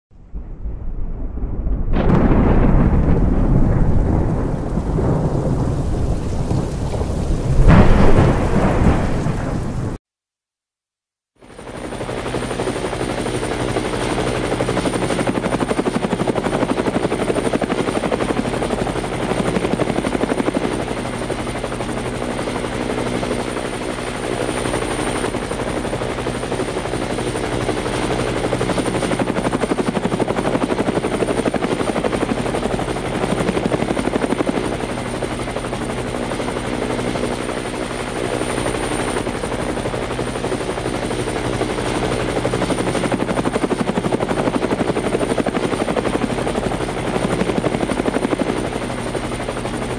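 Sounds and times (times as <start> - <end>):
helicopter engine drone: 4.0 - 10.0, 11.4 - 49.9
helicopter rotor chop: 11.5 - 49.9.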